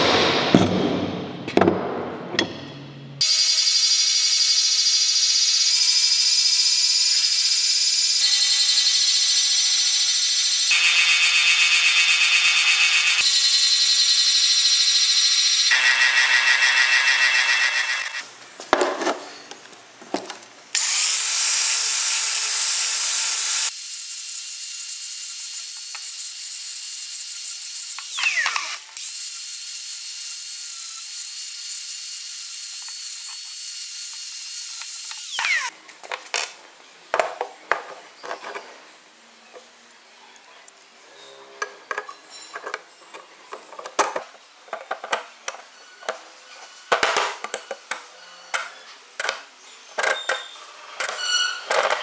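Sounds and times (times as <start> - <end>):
angle grinder grinding steel: 9.9 - 18.2.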